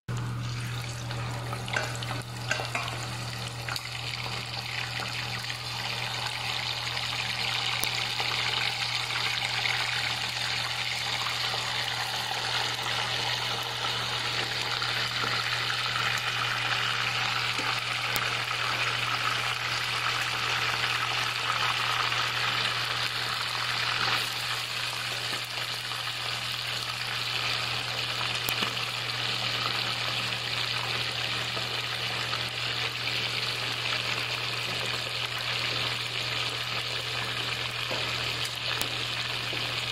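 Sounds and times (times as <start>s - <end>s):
chicken frying in hot oil: 0.1s - 39.9s.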